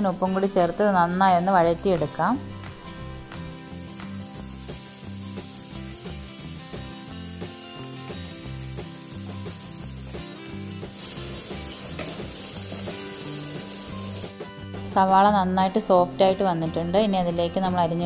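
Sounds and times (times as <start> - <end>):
onions sizzling in hot oil: 0.0 - 14.4.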